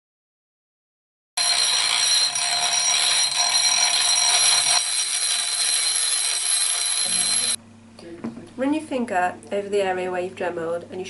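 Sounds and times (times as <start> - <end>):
rotary tool sanding a pipe: 1.4 - 7.6.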